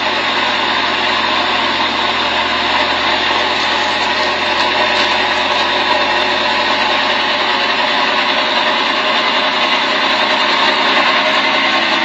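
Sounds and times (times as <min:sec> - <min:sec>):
boat engine running: 0:00.0 - 0:12.0.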